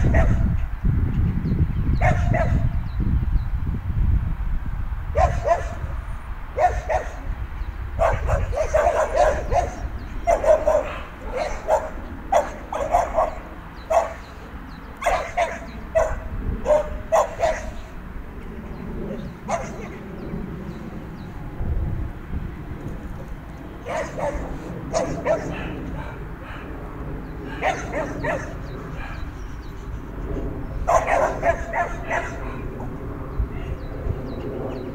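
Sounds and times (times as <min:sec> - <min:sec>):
dog barking: 0:00.0 - 0:00.5, 0:02.0 - 0:02.6, 0:05.2 - 0:05.9, 0:06.6 - 0:07.2, 0:08.0 - 0:14.3, 0:15.0 - 0:17.9, 0:19.5 - 0:20.0, 0:23.8 - 0:26.6, 0:27.5 - 0:29.2, 0:30.9 - 0:32.6
wind rumble on microphone: 0:00.0 - 0:34.9.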